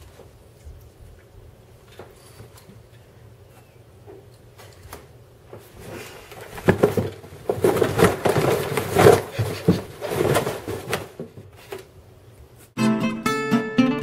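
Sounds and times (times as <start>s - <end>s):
rustling: 4.6s - 12.7s
person tumbling with thumps and knocks: 5.5s - 11.8s.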